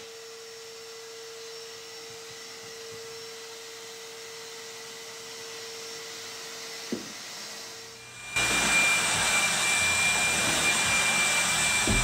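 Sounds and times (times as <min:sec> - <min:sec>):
high machine whine: 0:07.9 - 0:12.0
loud rushing machine noise: 0:08.4 - 0:12.0
knock: 0:11.8 - 0:12.0.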